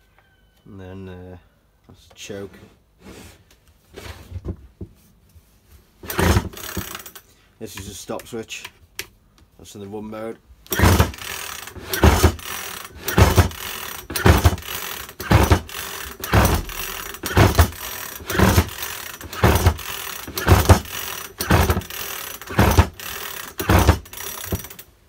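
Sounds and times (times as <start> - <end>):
chainsaw recoil starter pulls: 6.0 - 7.3, 10.7 - 24.9.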